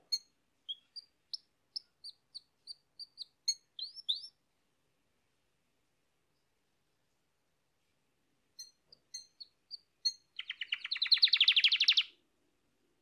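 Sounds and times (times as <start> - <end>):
canary chirping: 0.0 - 4.4, 8.6 - 12.2.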